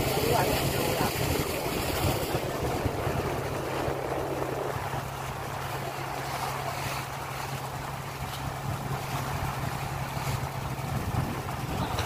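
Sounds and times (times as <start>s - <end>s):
boat engine droning: 0.0s - 12.0s
wind and water rushing: 0.0s - 12.0s.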